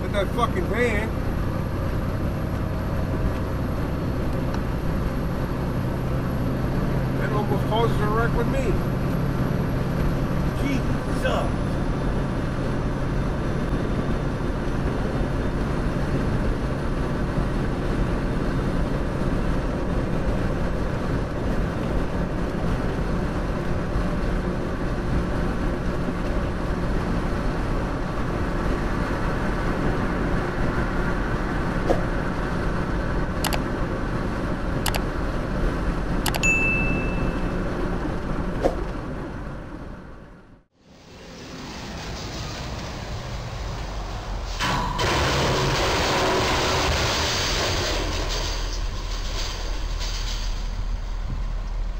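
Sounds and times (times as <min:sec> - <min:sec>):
truck engine and road noise: 0:00.0 - 0:51.9
sharp clicks: 0:34.8 - 0:35.0, 0:36.2 - 0:36.5
short high beep: 0:36.3 - 0:37.6.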